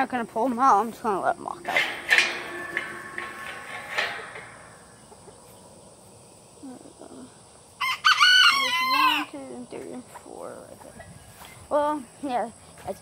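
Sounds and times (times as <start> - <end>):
faint chicken sounds: 1.8 - 11.6
rooster crowing: 7.8 - 9.3.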